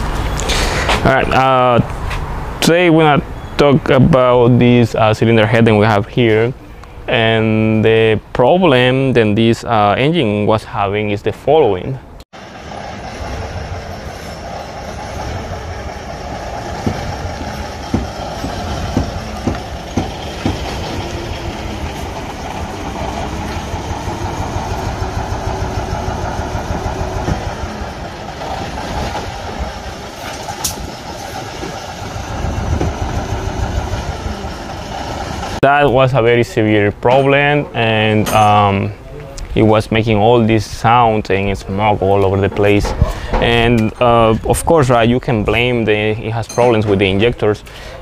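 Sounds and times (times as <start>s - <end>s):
diesel engine misfiring: 12.4s - 36.3s, 41.9s - 48.0s.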